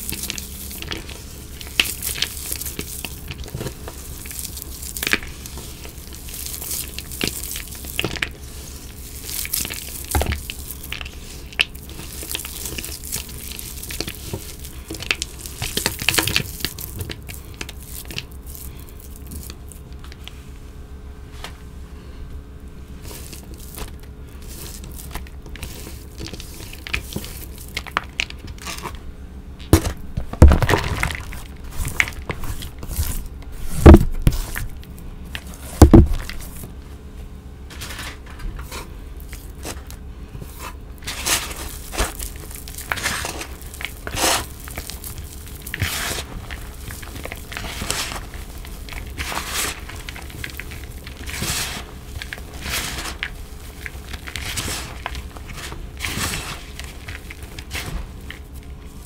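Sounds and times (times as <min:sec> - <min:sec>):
hands crushing chalk: 0:00.0 - 0:20.4, 0:23.0 - 0:29.0, 0:29.6 - 0:36.7, 0:37.8 - 0:59.0.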